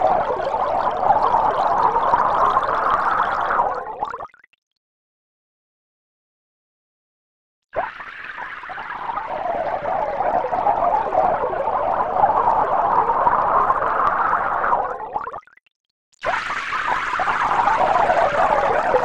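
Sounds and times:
water pouring into a glass tank: 0:00.0 - 0:04.5, 0:07.8 - 0:15.6, 0:16.2 - 0:19.0.

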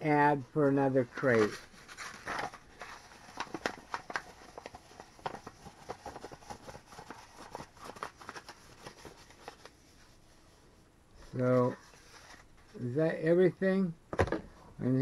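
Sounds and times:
paper crinkling: 0:01.0 - 0:10.5, 0:11.4 - 0:12.8.

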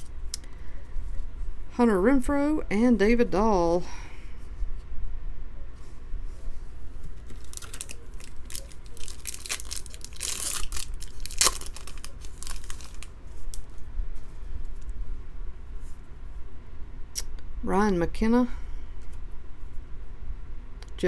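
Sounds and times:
foil wrapper crinkling and tearing: 0:07.2 - 0:13.8.

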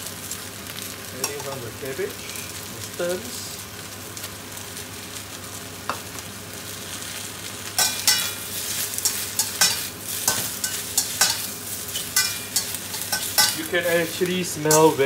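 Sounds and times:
vegetables sizzling in a wok: 0:00.0 - 0:15.0
metal spatula scraping a wok: 0:07.8 - 0:13.6.

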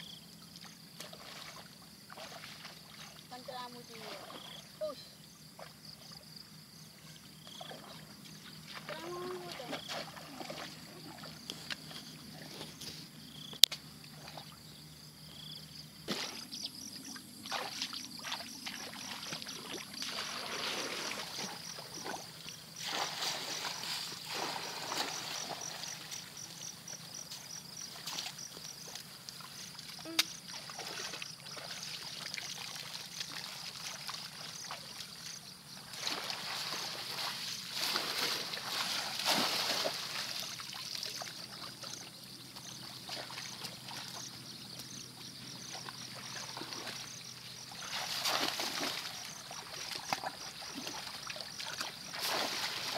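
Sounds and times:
people wading through water: 0:06.9 - 0:13.2, 0:16.9 - 0:52.9
water trickling: 0:27.6 - 0:52.9.

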